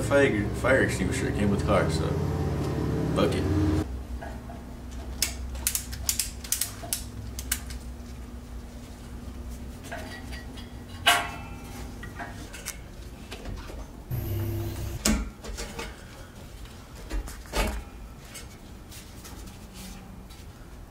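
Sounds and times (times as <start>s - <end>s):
low mechanical hum: 0.0s - 15.3s.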